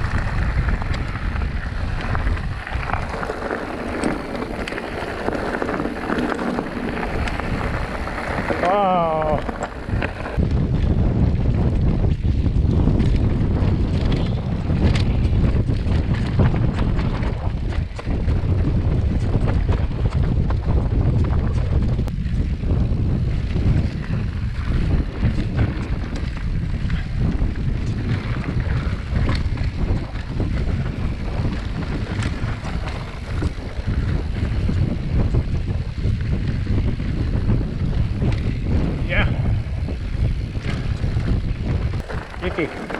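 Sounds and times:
sharp clicks and rattles: 0:00.0 - 0:10.9, 0:24.7 - 0:42.9
wind buffeting microphone: 0:00.0 - 0:42.9.

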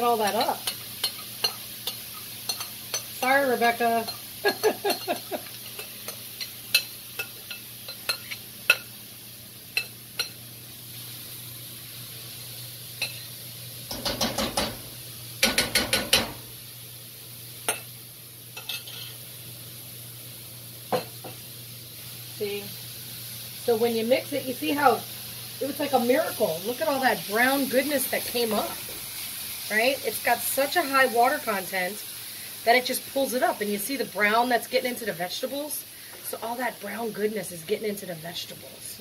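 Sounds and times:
vegetables sizzling in a pan: 0:00.0 - 0:39.0
spoon scraping a pan: 0:00.2 - 0:08.9, 0:13.0 - 0:13.3, 0:18.6 - 0:19.2.

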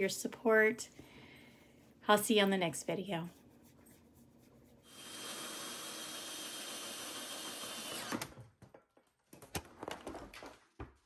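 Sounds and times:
power drill drilling into plastic: 0:04.9 - 0:08.4.

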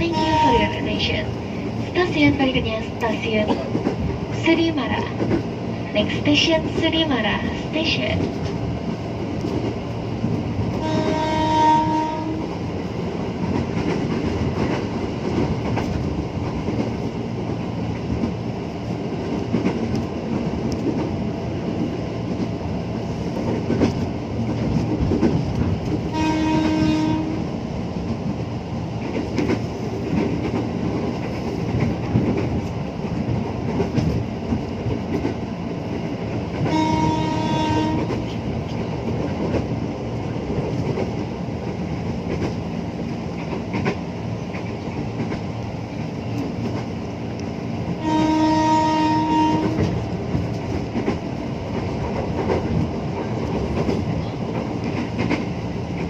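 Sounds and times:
train rolling on rails: 0:00.0 - 0:56.0
train horn blasts: 0:10.8 - 0:12.5, 0:26.1 - 0:27.5, 0:36.6 - 0:38.2, 0:48.0 - 0:49.9.

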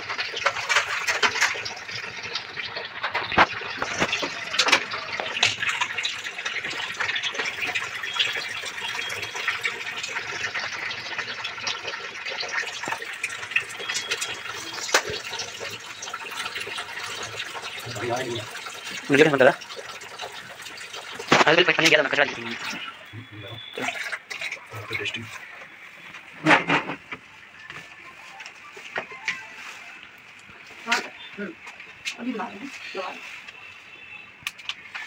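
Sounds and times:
tap water running into sink: 0:00.0 - 0:25.7.

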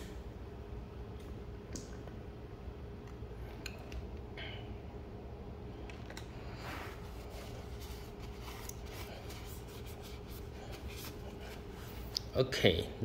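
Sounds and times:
faint steady hum: 0:00.0 - 0:13.0
paper tissue rustling: 0:06.5 - 0:12.1.

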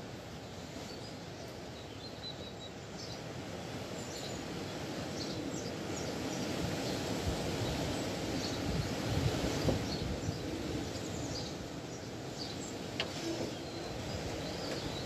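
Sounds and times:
wind rushing over microphone: 0:03.7 - 0:15.0
faint bird chirps: 0:09.9 - 0:15.0.

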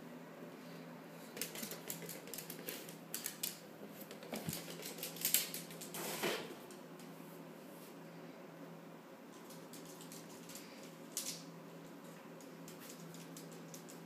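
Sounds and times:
dog claws clicking on wooden floor: 0:01.4 - 0:06.0, 0:09.3 - 0:14.0.

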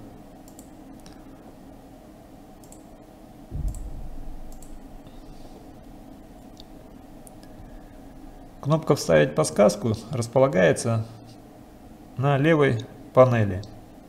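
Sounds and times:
low hum: 0:00.0 - 0:12.2
computer mouse clicking: 0:00.4 - 0:01.2, 0:02.6 - 0:02.9, 0:03.6 - 0:04.8
dull low thump: 0:03.5 - 0:05.2.

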